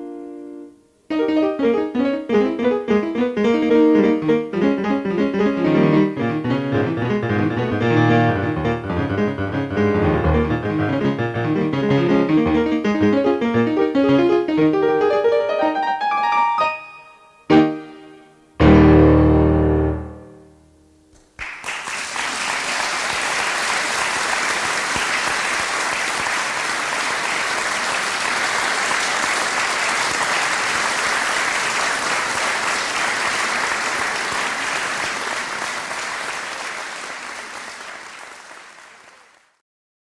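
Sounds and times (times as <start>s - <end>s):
low piano chord: 16.6s - 21.1s
audience applause: 21.3s - 39.6s.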